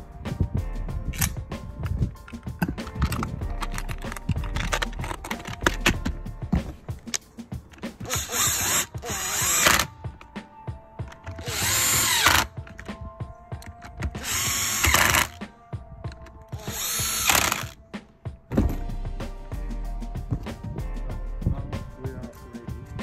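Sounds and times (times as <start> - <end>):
cordless impact driver driving screws: 8.0 - 9.9, 11.2 - 12.5, 13.6 - 15.4, 16.5 - 17.8.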